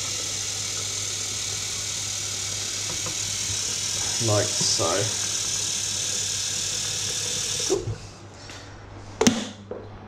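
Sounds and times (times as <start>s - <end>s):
tap water filling a kettle: 0.0s - 8.0s.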